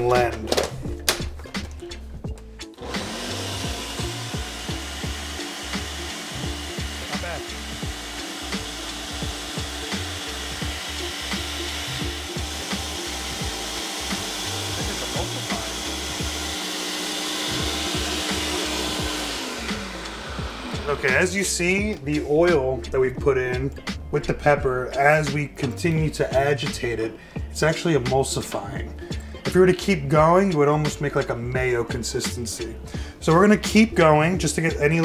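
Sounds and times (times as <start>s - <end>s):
blender motor running: 2.7s - 21.5s.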